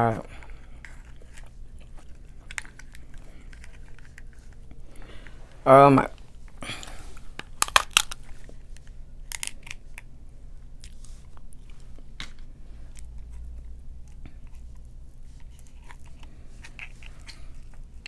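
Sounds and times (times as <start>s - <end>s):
seafood shell cracking: 7.4s - 8.3s, 9.2s - 10.1s.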